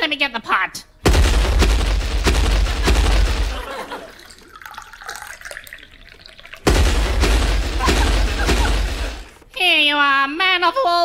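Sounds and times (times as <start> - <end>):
tea pouring into cups: 3.6 - 6.7.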